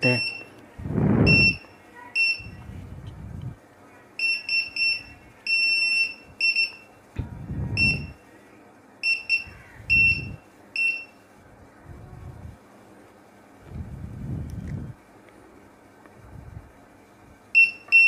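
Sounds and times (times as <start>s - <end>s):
metal detector beeping: 0.0s - 0.5s, 1.3s - 1.6s, 7.8s - 8.2s, 9.0s - 11.1s, 17.6s - 18.0s.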